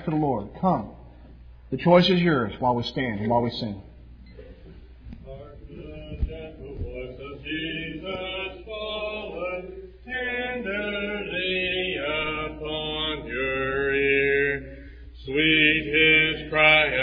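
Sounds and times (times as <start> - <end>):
congregation singing a hymn: 4.3 - 17.0.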